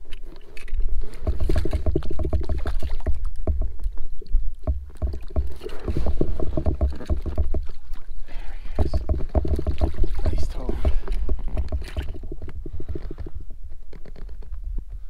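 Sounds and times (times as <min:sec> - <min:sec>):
fish thrashing in water: 0:00.0 - 0:14.4
water splashing and sloshing: 0:00.0 - 0:14.6
landing net plunged into water: 0:00.6 - 0:03.9
dull thumps: 0:01.1 - 0:14.6.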